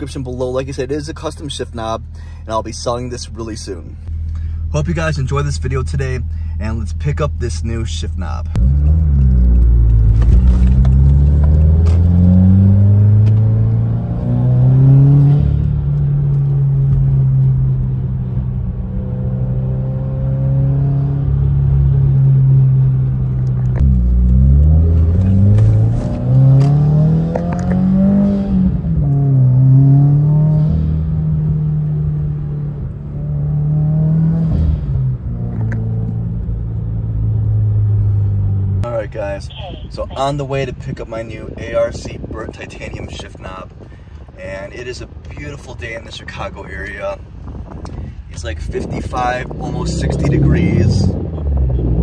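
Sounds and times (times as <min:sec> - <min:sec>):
car engine accelerating: 0:08.5 - 0:39.0, 0:47.4 - 0:52.0.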